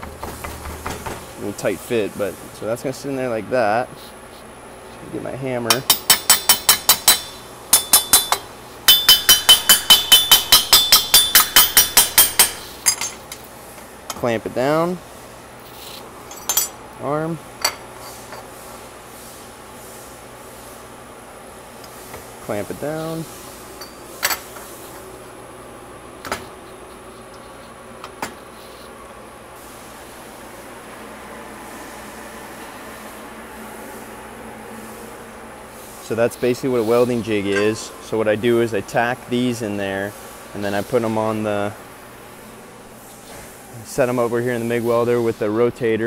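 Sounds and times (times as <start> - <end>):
low shop hum: 0.0 - 46.0
hammer tapping metal: 5.7 - 13.2.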